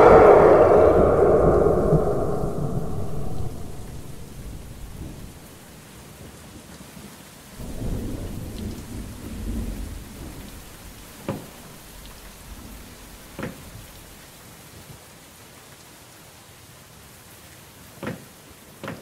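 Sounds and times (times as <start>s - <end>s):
rolling thunder rumble: 0.0s - 5.5s, 7.6s - 10.8s
steady rain: 4.2s - 19.0s.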